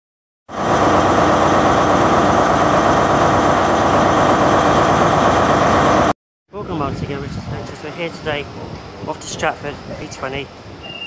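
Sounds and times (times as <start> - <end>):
loud steady engine noise: 0.5 - 6.1.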